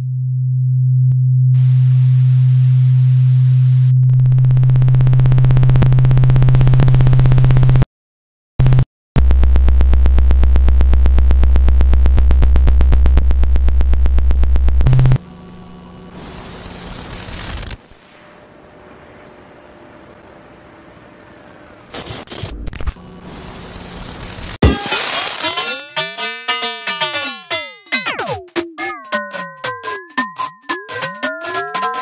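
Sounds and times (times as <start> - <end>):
synthesized low hum: 0.0 - 7.8, 8.6 - 21.5
pulsing electronic buzz: 1.6 - 7.8, 8.6 - 25.8.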